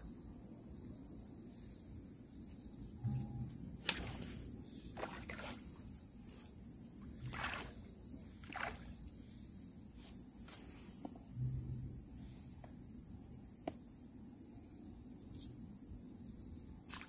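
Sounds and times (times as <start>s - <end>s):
crickets droning: 0.0s - 17.0s
fish splashing in water: 5.0s - 5.7s, 7.2s - 9.0s.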